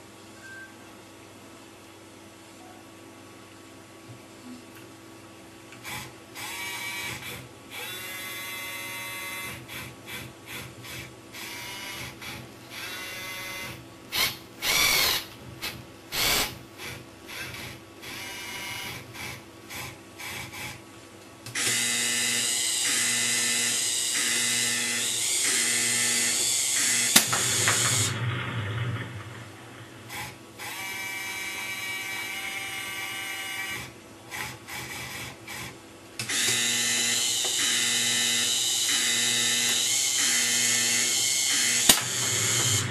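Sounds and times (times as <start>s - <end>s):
small electric motors whirring: 5.8s - 15.2s, 16.1s - 20.8s, 21.6s - 28.1s, 30.1s - 42.9s
toy firing mechanism pulsing: 5.8s - 19.3s, 21.6s - 42.9s.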